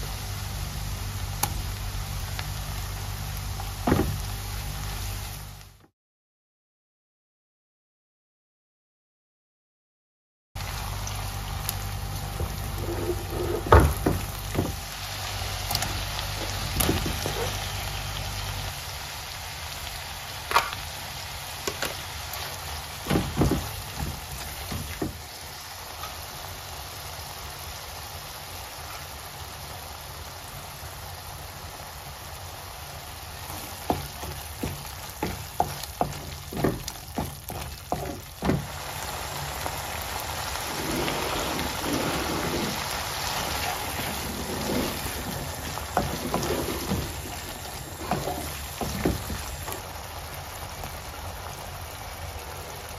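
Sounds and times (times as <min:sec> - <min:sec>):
masala sizzling in hot oil: 0:00.0 - 0:05.8, 0:10.6 - 0:52.9
spatula scraping and tapping pan: 0:33.5 - 0:38.6, 0:44.0 - 0:49.8.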